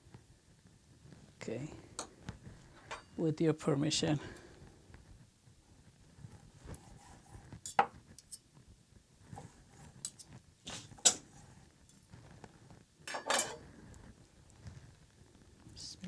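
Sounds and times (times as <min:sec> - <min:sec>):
knife scraping cutting board: 0:06.7 - 0:08.4
knife and fork clinking: 0:13.1 - 0:13.6.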